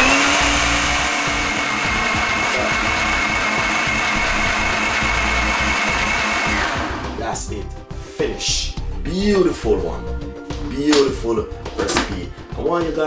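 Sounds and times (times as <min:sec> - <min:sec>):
blender running: 0:00.0 - 0:07.2.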